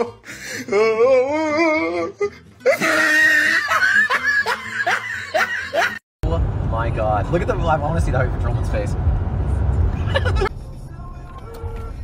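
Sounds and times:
person laughing loudly: 2.6s - 6.0s, 10.0s - 10.5s.

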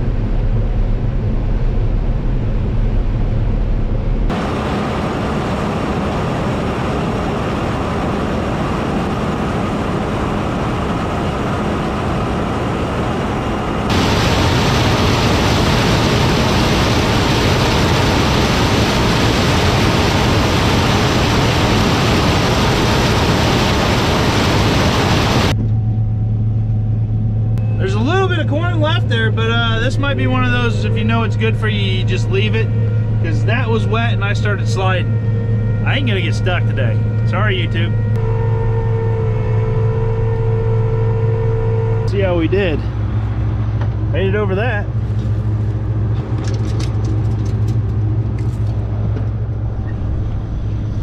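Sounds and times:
combine harvester engine droning: 0.0s - 51.0s.

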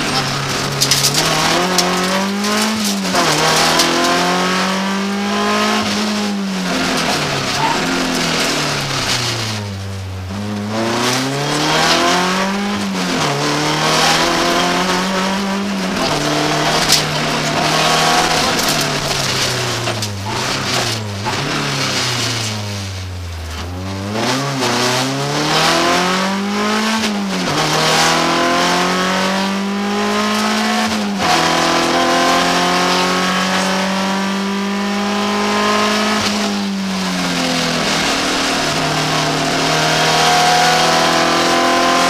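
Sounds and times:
rally car engine revving: 0.0s - 42.0s.

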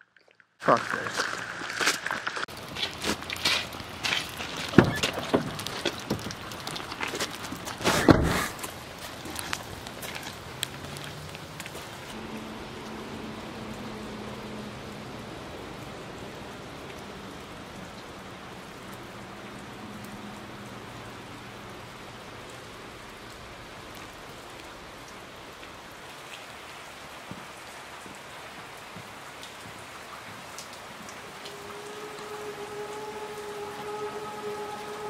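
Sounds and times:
steady hissing like rain: 0.6s - 35.0s
pitched drone of several tones: 31.1s - 35.0s.

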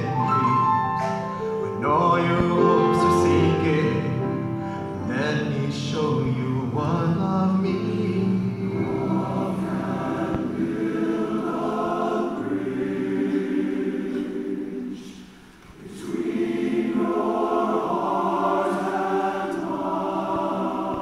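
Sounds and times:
men's chorus singing: 5.1s - 21.0s.

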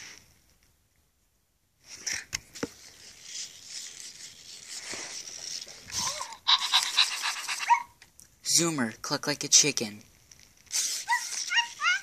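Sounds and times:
toy robot motors whirring: 3.1s - 7.8s, 10.7s - 12.0s.

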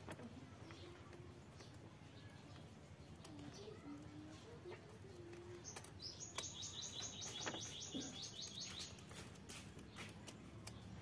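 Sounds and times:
small animal chirping: 5.6s - 9.3s.

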